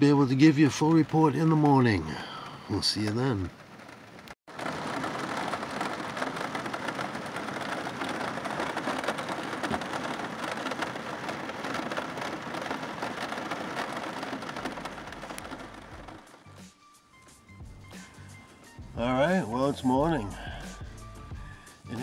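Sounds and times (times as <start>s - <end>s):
heavy rain on a metal roof: 0.1s - 16.6s.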